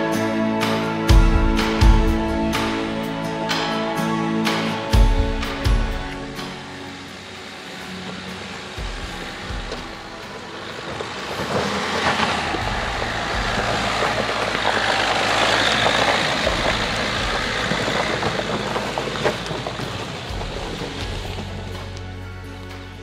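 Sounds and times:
car engine pulling under load: 0.0 - 23.0
snow chains clattering over gravel: 6.4 - 23.0.

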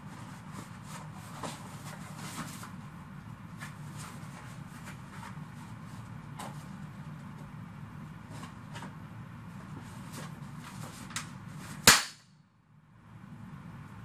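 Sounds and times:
paper rustling: 0.0 - 2.8
party popper bang: 11.8 - 12.2.

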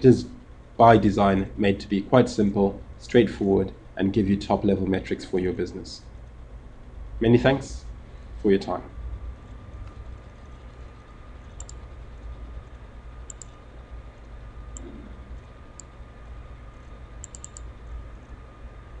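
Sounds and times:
faint steady whine: 0.0 - 19.0
steady low hum: 0.0 - 19.0
computer mouse clicks: 9.8 - 13.6, 14.7 - 15.1, 15.7 - 16.0, 17.2 - 17.7.

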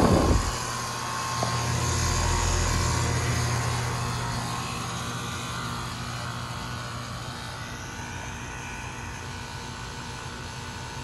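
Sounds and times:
fan whoosh: 0.0 - 5.0
low compressor hum: 0.0 - 10.3.

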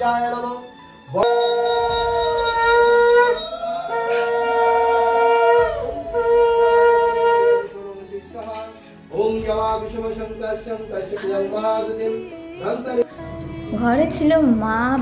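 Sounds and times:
conch shell blasts: 1.2 - 7.7.

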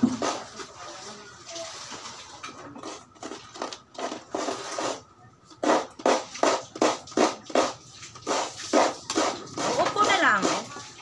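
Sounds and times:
coconut scraping on grater: 2.8 - 10.9.

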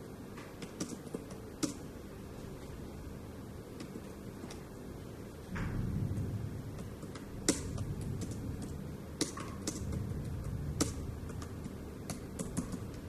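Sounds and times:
low steady hum: 0.0 - 13.0.

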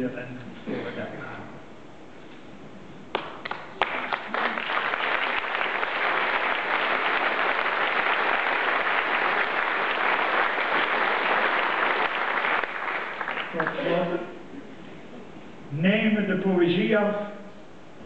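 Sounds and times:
audience applauding: 3.1 - 14.0.

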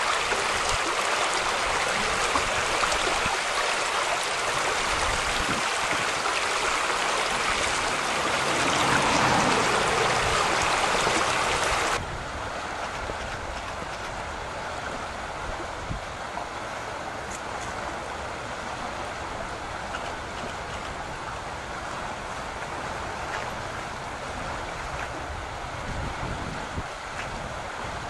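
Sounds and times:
river water rushing: 0.0 - 28.0.

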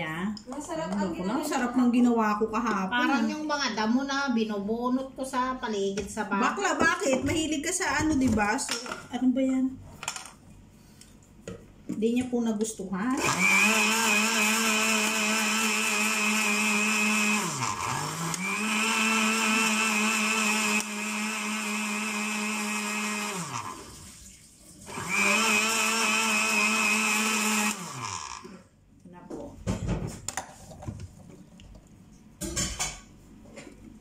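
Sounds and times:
electric blender running: 13.2 - 24.2, 24.8 - 28.6.

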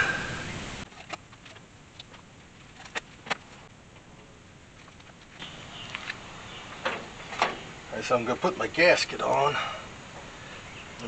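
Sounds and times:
low hiss: 0.0 - 11.0.

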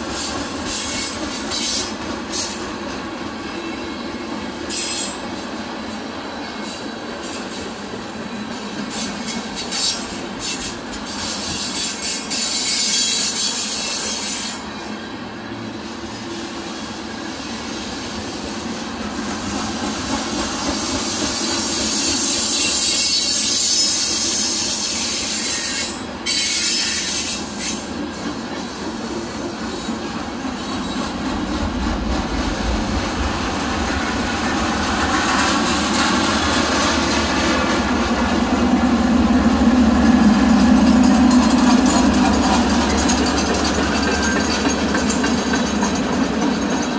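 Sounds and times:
train wheels hissing and squealing: 0.0 - 46.9.

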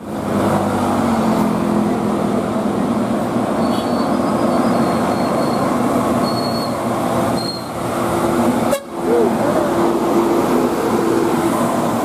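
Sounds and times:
bus engine and road noise: 0.0 - 12.0
bus multi-tone horn: 3.6 - 4.2, 8.7 - 9.0.

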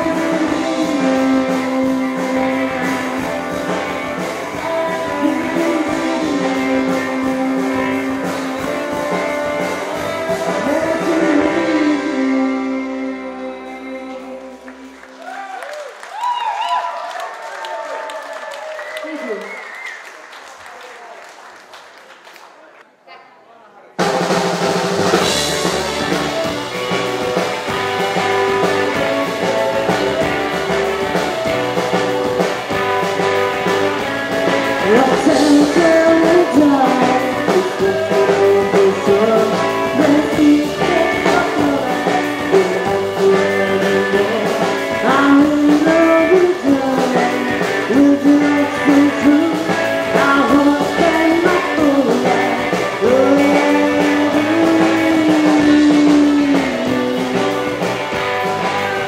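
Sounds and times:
woman singing: 0.0 - 14.8, 34.7 - 57.8
rockabilly band playing: 0.0 - 16.0, 24.0 - 59.0.

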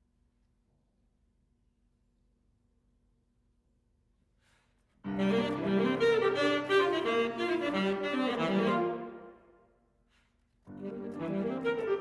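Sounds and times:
alto saxophone: 5.0 - 9.7, 10.7 - 12.0
grand piano: 5.0 - 9.7, 10.6 - 12.0.

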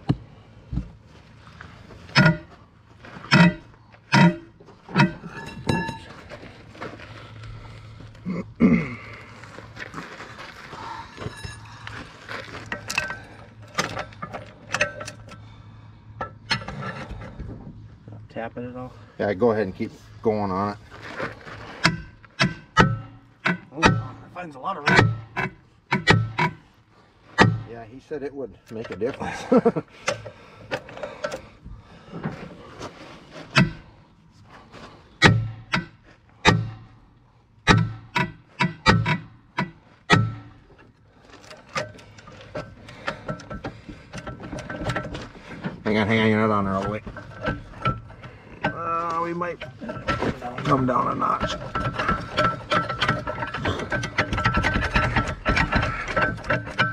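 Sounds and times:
low steady hum: 0.0 - 56.9
sledgehammer striking steel axle: 2.1 - 2.6, 3.3 - 6.1, 21.8 - 26.7, 27.4 - 27.8, 33.5 - 33.9, 35.2 - 37.0, 37.6 - 40.8, 49.6 - 56.9.

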